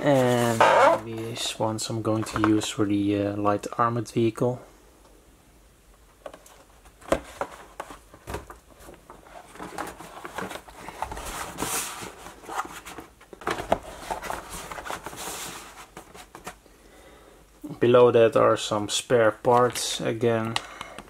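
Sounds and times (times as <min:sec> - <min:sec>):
cardboard boxes scraping: 0:00.0 - 0:01.1, 0:09.2 - 0:16.5.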